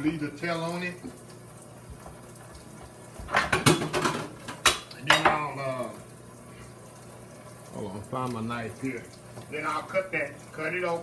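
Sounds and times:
cutlery and dishes clattering: 3.3 - 5.4.

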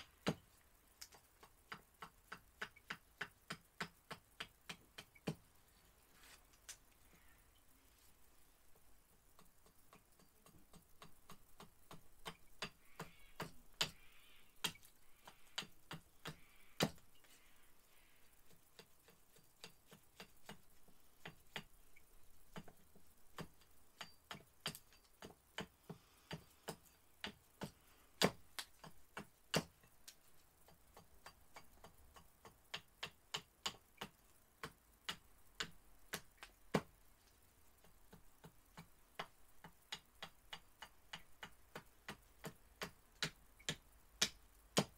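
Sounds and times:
axe chopping wood: 9.4 - 14.0, 15.6 - 17.0, 23.4 - 29.8, 30.7 - 36.9, 40.5 - 44.9.

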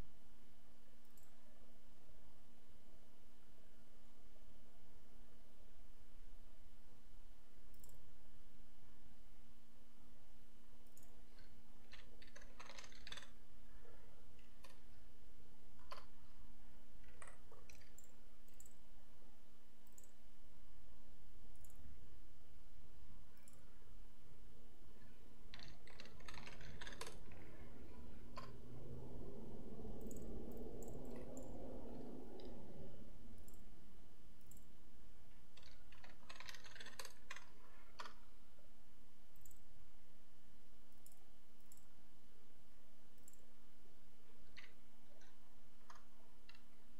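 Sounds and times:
steady low hum: 0.0 - 46.9
mouse clicks: 1.0 - 1.4, 7.7 - 8.0, 10.8 - 13.4, 17.0 - 18.8, 19.8 - 20.2, 23.3 - 23.7, 29.9 - 32.6, 39.4 - 39.6, 40.9 - 41.9, 43.2 - 43.4
computer keyboard typing: 10.9 - 13.4, 25.5 - 28.6, 29.9 - 33.7, 35.6 - 38.2.

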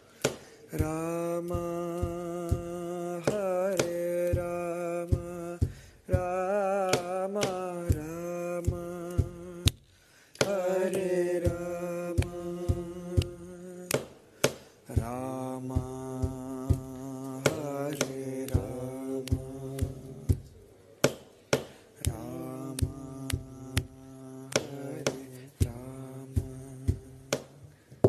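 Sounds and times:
man singing devotional song: 0.0 - 20.5, 21.9 - 27.6
sharp taps keeping time: 10.4 - 27.0.

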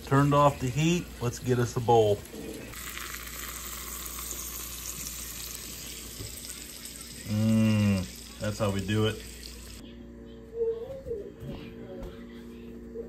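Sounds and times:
food sizzling in a skillet: 0.2 - 9.8.

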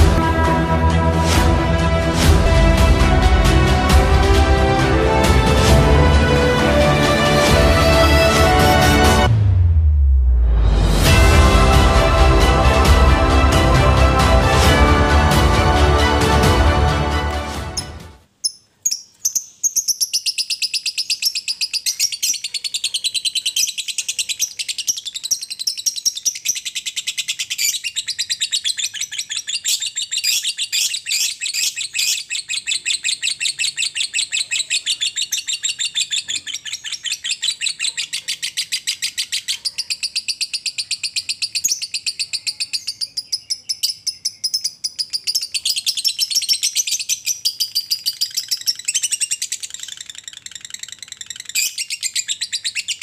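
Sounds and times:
lovebird chattering song: 18.4 - 53.0.

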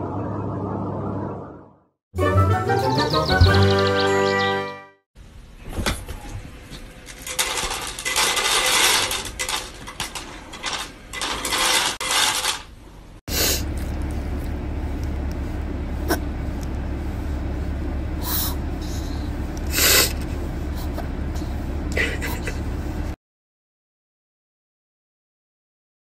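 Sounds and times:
kibble clattering into tray: 7.1 - 12.6.

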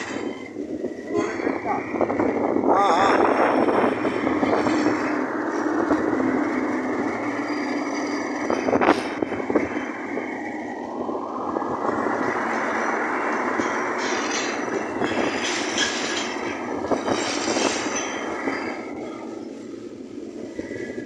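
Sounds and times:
low engine hum: 0.0 - 15.7
road and engine noise: 0.0 - 21.0.

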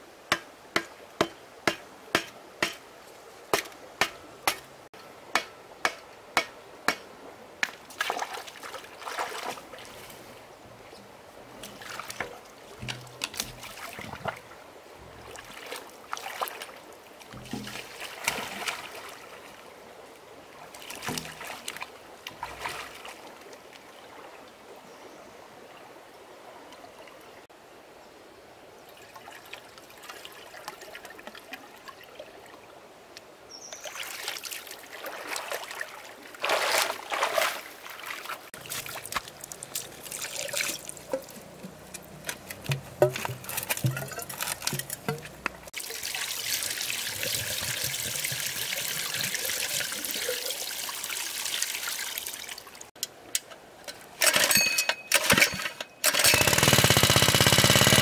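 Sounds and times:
sharp knocks: 0.3 - 2.8, 3.5 - 4.7, 12.8 - 13.6, 17.4 - 17.9, 42.4 - 45.4
shallow water splashing: 7.6 - 10.5, 11.4 - 19.7, 33.9 - 52.6.

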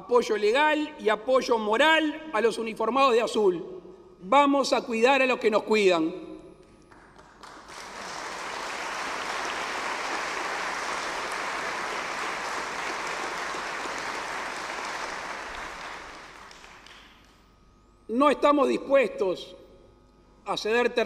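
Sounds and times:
large audience applauding: 6.9 - 17.3.

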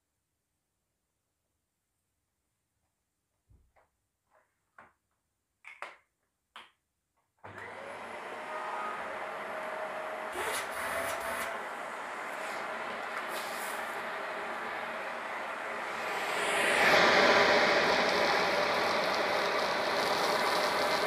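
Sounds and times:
vacuum cleaner running: 7.4 - 21.0.

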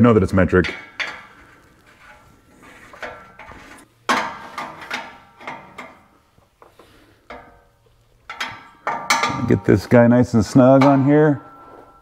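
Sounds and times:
wrench clinking on metal: 7.3 - 9.8.

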